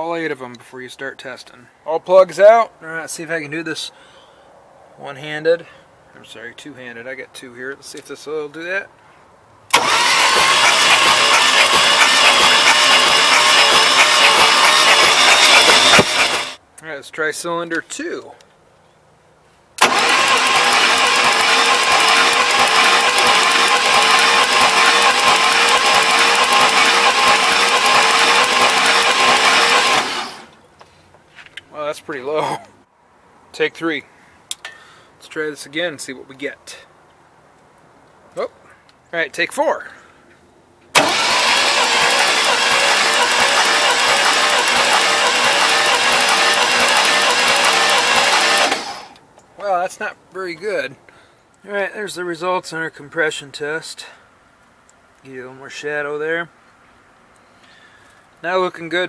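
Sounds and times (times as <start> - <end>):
starter motor cranking engine: 9.7 - 16.6, 19.8 - 30.6, 41.0 - 49.2.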